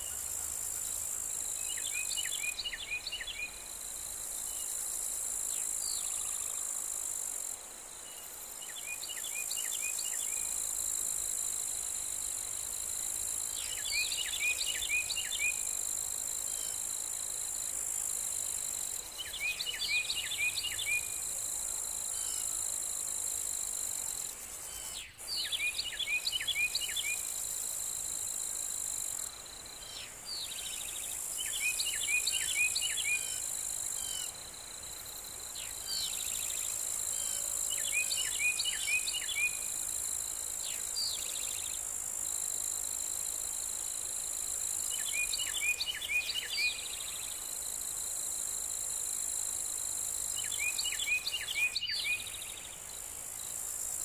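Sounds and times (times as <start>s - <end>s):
songbird singing: 0.0s - 3.8s, 13.3s - 24.1s, 24.7s - 27.5s, 29.1s - 34.4s, 35.4s - 39.8s, 44.7s - 47.5s, 50.2s - 53.7s.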